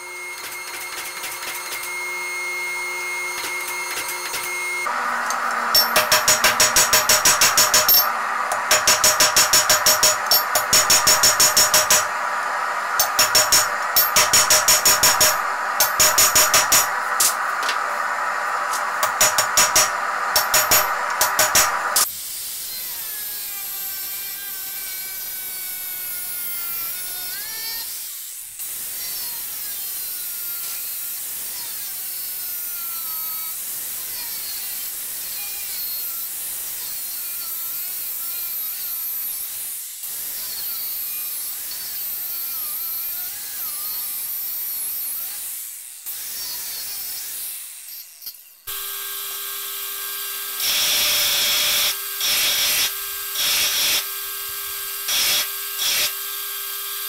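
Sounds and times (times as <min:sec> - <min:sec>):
angle grinder whining on steel: 0:00.0 - 0:22.1, 0:36.9 - 0:57.0
machine humming: 0:00.0 - 0:22.1.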